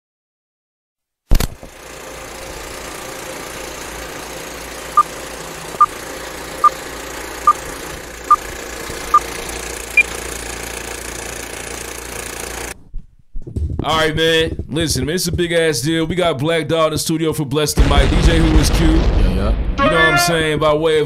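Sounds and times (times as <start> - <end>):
film projector whir: 1.3 - 12.8.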